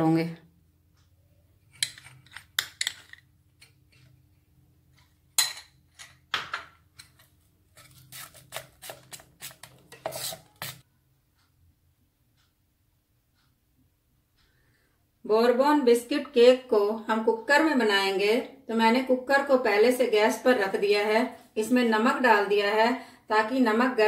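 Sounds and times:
metal spoon scraping a bowl: 0:07.0 - 0:10.8.

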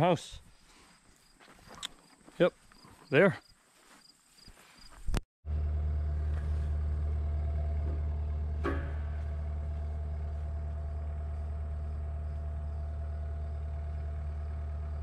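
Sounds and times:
engine idling: 0:05.5 - 0:15.0.

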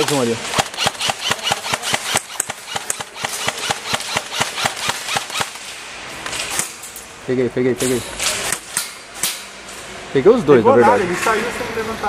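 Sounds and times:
airsoft guns firing: 0:00.0 - 0:05.8.

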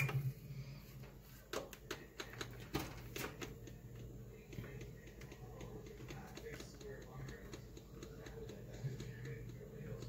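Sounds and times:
faint low hum: 0:00.0 - 0:10.0.

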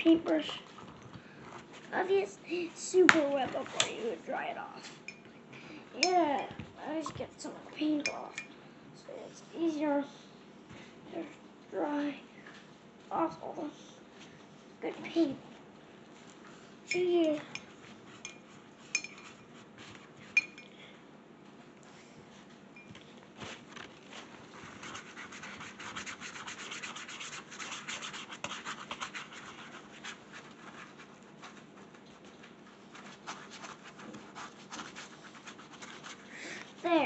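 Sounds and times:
paintbrushes scratching and rubbing: 0:23.5 - 0:37.0.

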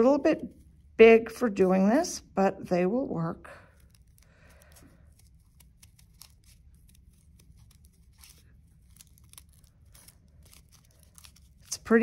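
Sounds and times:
scissors snipping paper: 0:03.8 - 0:12.0.

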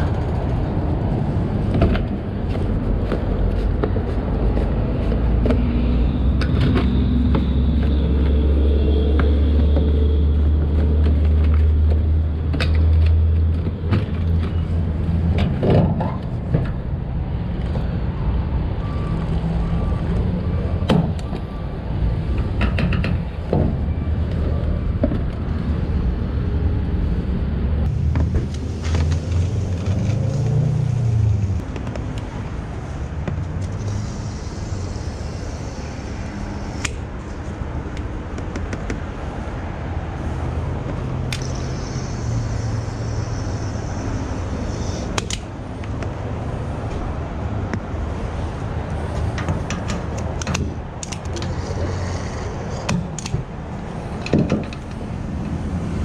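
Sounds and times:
vehicle engines rumbling: 0:00.0 - 0:56.0.

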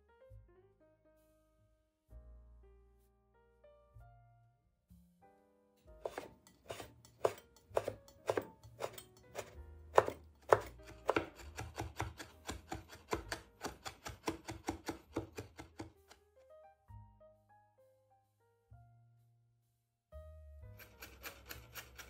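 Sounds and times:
knife chopping on wooden board: 0:06.0 - 0:16.1.

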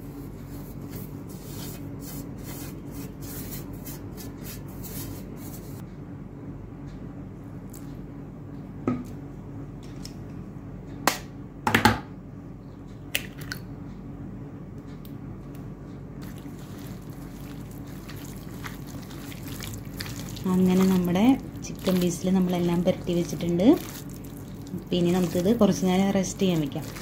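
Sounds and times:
steady low hum: 0:00.0 - 0:27.0
wet rubbing of mixing meat: 0:16.2 - 0:27.0.

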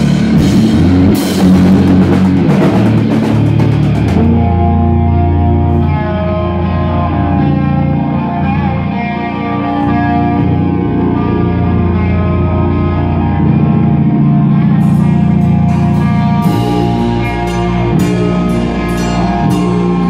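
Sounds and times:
drums and cymbals: 0:00.0 - 0:04.8, 0:14.8 - 0:20.0
electric guitars and bass: 0:00.0 - 0:20.0.

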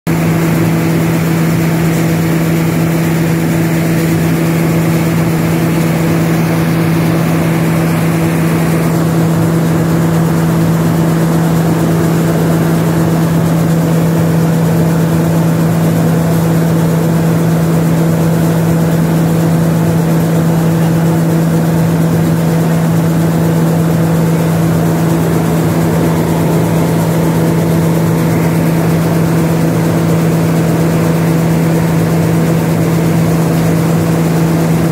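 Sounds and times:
machinery humming: 0:00.1 - 0:34.9
rushing noise: 0:23.3 - 0:32.7.

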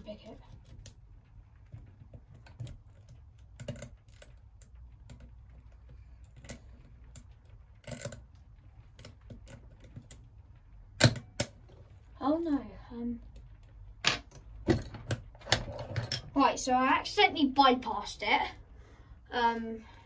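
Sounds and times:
lock pick clicking and scraping: 0:01.7 - 0:10.3, 0:11.0 - 0:11.7.

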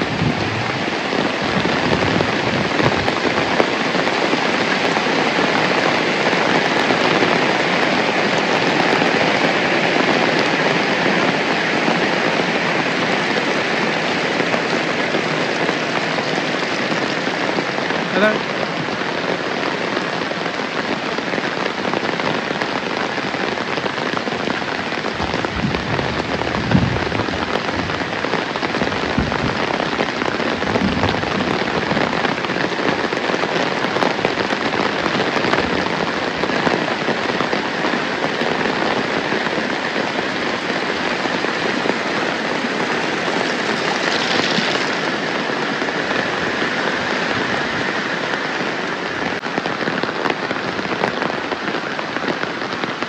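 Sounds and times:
dull low thumps: 0:00.0 - 0:00.8, 0:25.1 - 0:28.1, 0:28.8 - 0:29.8, 0:30.6 - 0:31.4
heavy rain: 0:00.0 - 0:53.0.

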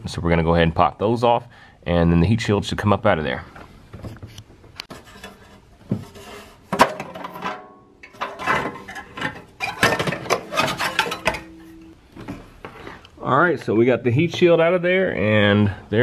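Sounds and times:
metal clanks and scrapes: 0:04.8 - 0:13.0.

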